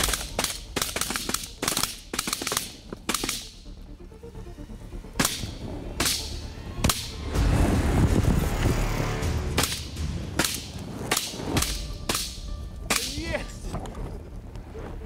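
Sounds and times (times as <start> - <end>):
shotgun shots: 0.0 - 3.6, 5.2 - 7.2, 9.6 - 13.1.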